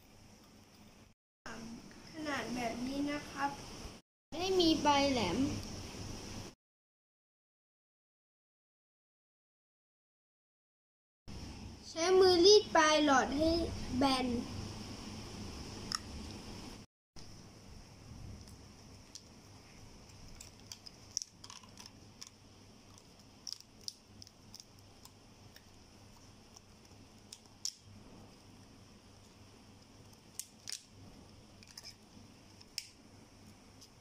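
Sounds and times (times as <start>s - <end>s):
low steady hiss: 0.0s - 6.6s, 11.3s - 34.0s
plastic items clicking and tapping: 20.4s - 22.4s.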